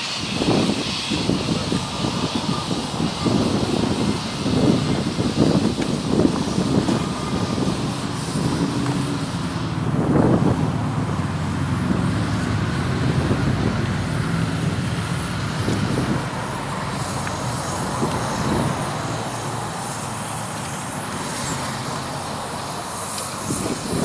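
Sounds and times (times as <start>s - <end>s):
faint steam puffs: 0.0s - 24.0s
steam locomotive rumbling: 0.0s - 24.0s.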